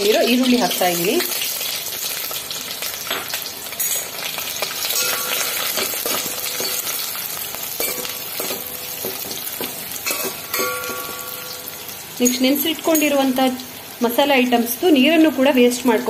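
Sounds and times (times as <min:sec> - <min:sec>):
onions sizzling in hot fat: 0:00.0 - 0:16.0.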